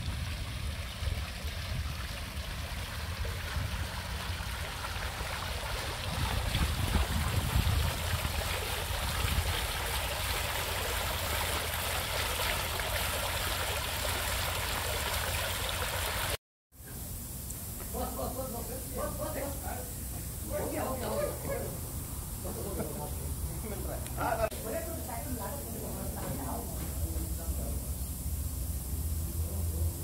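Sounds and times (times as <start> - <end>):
fountain splashing and trickling: 0.0 - 16.4.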